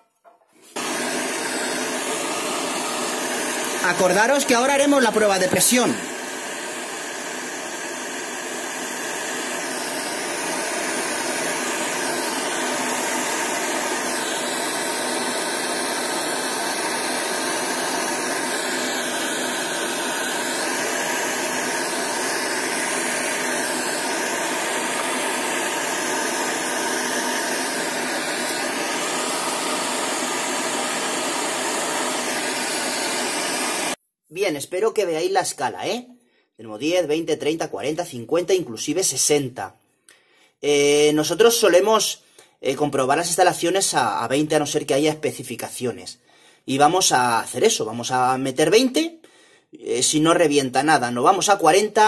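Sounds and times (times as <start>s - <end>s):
gas torch hissing: 0.6s - 34.0s.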